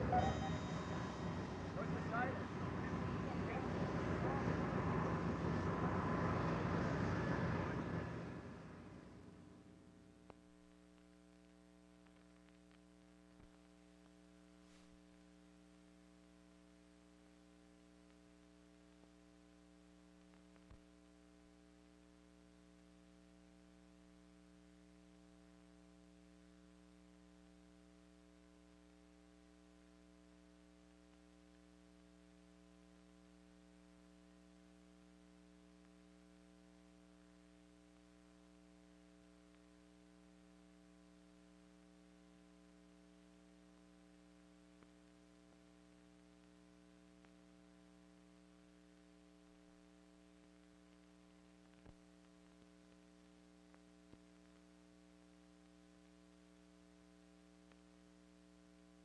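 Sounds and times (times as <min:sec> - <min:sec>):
faint electrical hum: 0:00.0 - 0:59.0.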